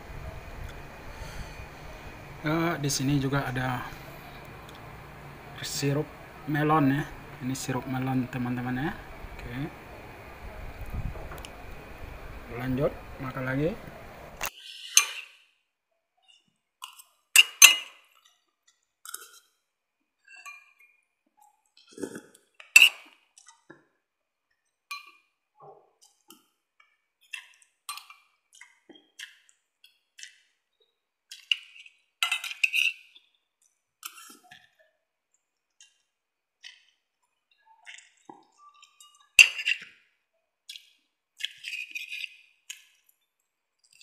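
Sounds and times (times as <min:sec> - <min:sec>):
cutlery clinking and scraping plate: 0:22.7 - 0:23.2, 0:31.4 - 0:33.2, 0:38.4 - 0:39.9, 0:41.4 - 0:43.0.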